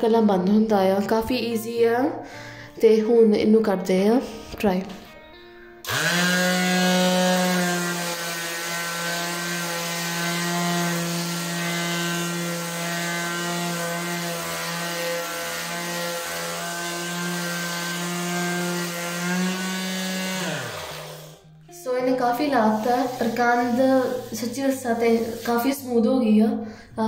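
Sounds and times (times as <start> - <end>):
detail sander motor hum: 5.8 - 21.5.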